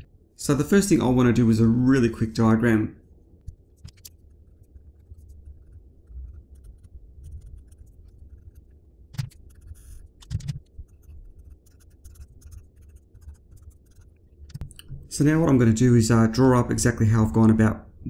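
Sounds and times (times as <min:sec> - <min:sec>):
marker squeaking on paper: 0:03.7 - 0:14.6.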